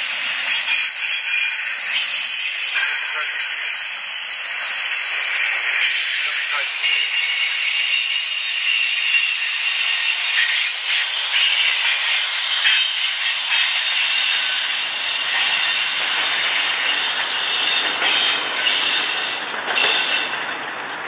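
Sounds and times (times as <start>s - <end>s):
train wheels rolling on rails: 0.0s - 21.0s
wheel squeal: 0.2s - 12.9s.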